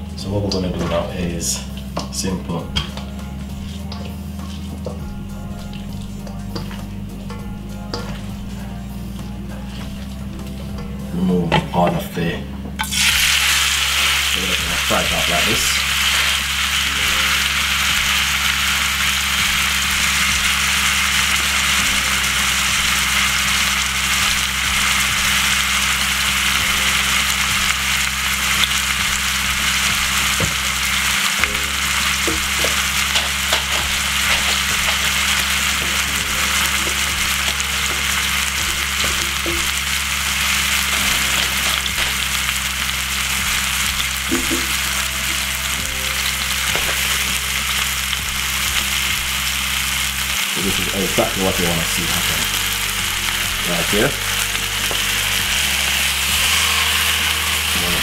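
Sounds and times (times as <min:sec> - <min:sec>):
meat sizzling in a pan: 0:12.8 - 0:58.0.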